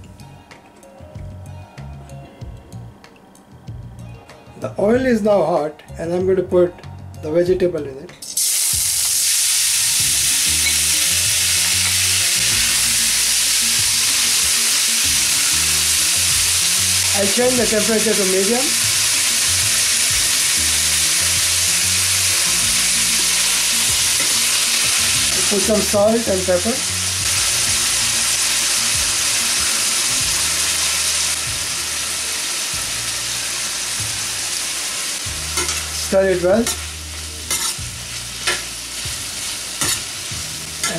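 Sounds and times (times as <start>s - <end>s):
vegetables sizzling in hot oil: 8.2s - 40.9s.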